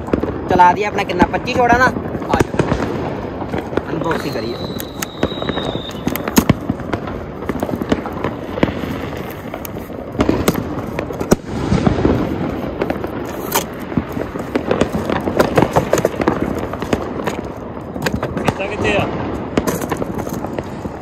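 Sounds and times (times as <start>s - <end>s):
firecrackers popping and banging: 0.0s - 21.0s
high whistle: 4.4s - 6.2s.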